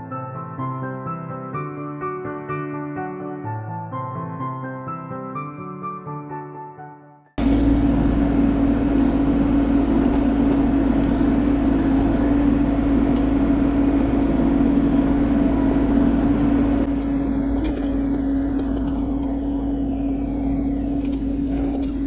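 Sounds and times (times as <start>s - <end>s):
excavator engine and hydraulics: 7.4s - 22.0s.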